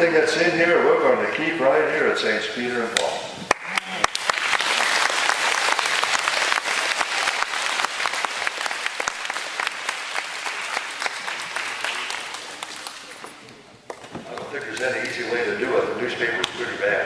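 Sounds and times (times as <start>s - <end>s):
crowd applauding: 3.5s - 15.1s.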